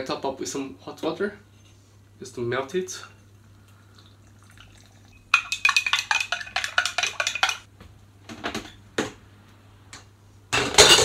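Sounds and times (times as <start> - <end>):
spoon clinking in a jug: 4.6 - 7.7.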